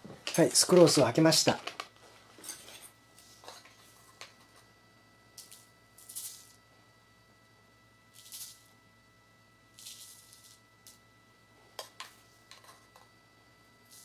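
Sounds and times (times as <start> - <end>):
gritty rattles of sugar crystals: 5.4 - 6.6, 8.1 - 8.8, 9.7 - 11.0.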